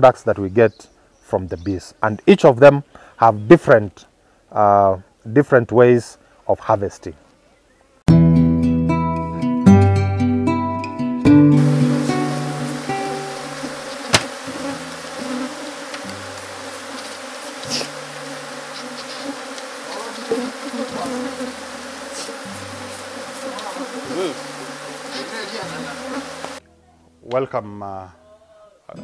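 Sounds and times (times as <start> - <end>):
bees buzzing: 11.4 - 26.6.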